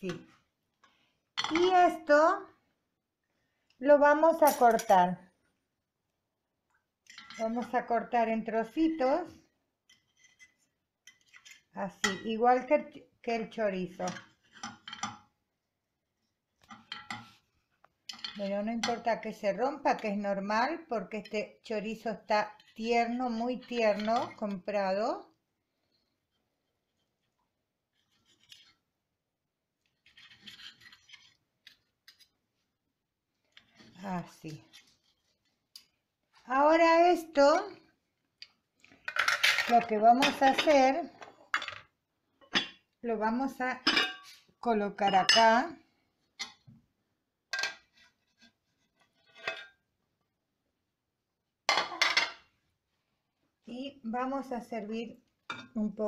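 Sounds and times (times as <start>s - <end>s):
knife and fork scraping a plate: 9.9s - 11.7s, 30.0s - 31.4s
crockery and utensil clinking: 43.8s - 44.4s.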